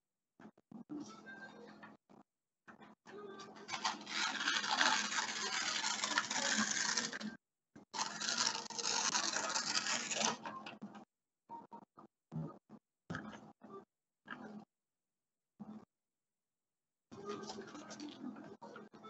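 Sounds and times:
paper tearing: 3.6s - 10.5s.

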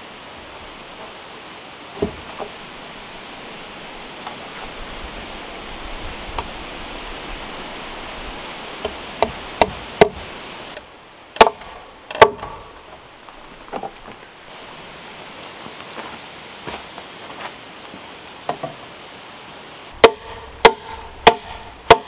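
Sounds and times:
steady background hiss: 0.0s - 22.0s
hammer striking wood: 9.2s - 10.2s, 11.4s - 12.7s, 20.0s - 22.0s.

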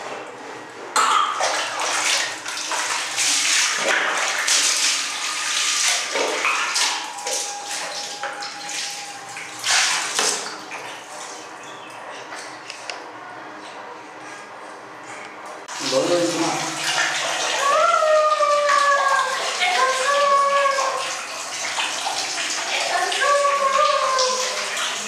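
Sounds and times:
water splashing on tiled floor: 1.2s - 11.5s, 15.7s - 25.0s.

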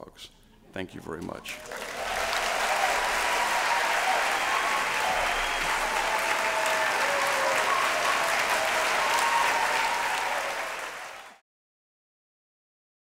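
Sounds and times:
audience applauding: 1.5s - 11.4s.

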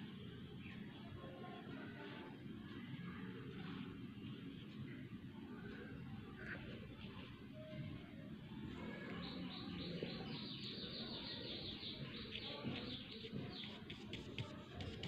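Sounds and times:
bird chirping: 9.1s - 13.9s.

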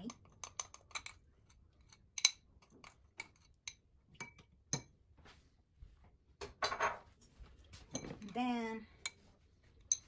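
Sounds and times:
spoon clinking against glass bowl: 0.0s - 1.2s, 1.9s - 4.9s, 9.0s - 10.0s.

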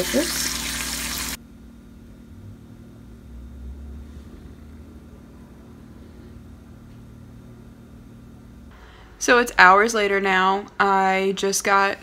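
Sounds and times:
tofu sizzling in a pan: 0.0s - 1.4s
low background hum: 0.0s - 12.0s.

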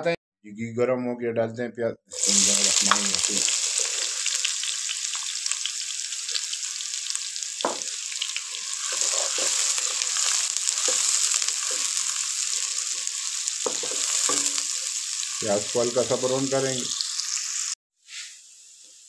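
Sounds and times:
onions sizzling in a pan: 2.1s - 19.0s
wooden spatula scraping a pan: 8.8s - 14.9s.

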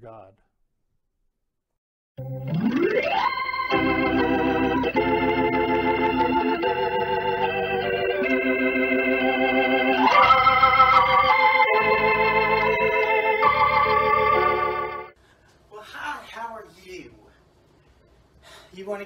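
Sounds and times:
organ chords: 2.2s - 15.2s.

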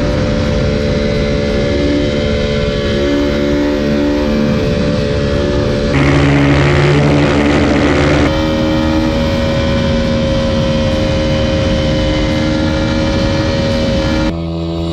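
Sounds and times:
motorcycle engine at high rpm: 0.0s - 14.9s
wind rushing over microphone: 4.2s - 14.3s.

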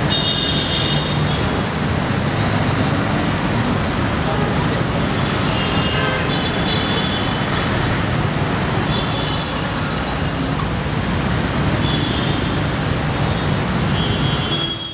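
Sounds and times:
road traffic hum: 0.0s - 14.9s.

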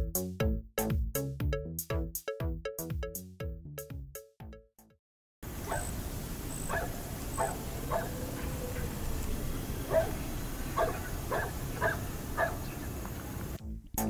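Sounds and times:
background hiss: 5.4s - 13.6s
dogs yipping: 5.7s - 12.9s.

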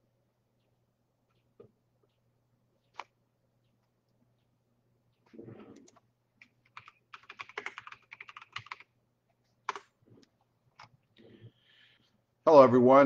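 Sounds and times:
computer keyboard typing: 5.8s - 8.9s, 9.7s - 9.9s.

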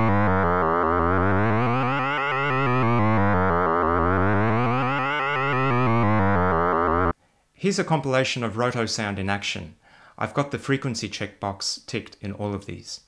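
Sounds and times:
buzzy synthesized tone: 0.0s - 7.2s.

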